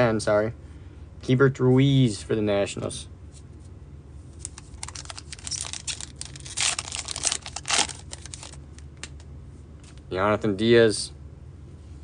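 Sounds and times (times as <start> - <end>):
plastic wrapper crinkling and tearing: 4.4 - 9.2.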